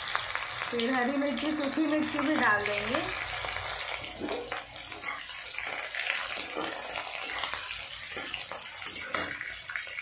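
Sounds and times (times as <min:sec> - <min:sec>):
vegetables sizzling in hot oil: 0:00.0 - 0:10.0
metal spatula scraping and stirring: 0:02.6 - 0:09.5.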